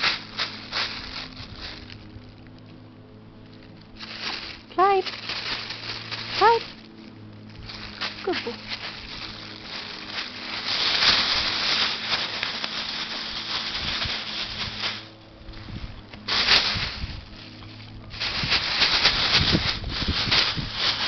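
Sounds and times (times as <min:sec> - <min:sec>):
plastic bag crinkling and rustling: 0:00.0 - 0:02.7, 0:03.4 - 0:21.0.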